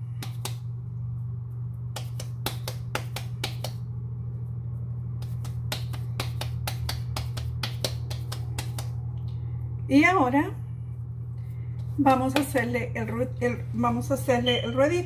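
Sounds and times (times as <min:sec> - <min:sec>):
hands patting dough: 0:00.0 - 0:04.0, 0:04.7 - 0:09.2, 0:11.5 - 0:13.2
steady low hum: 0:00.0 - 0:15.0.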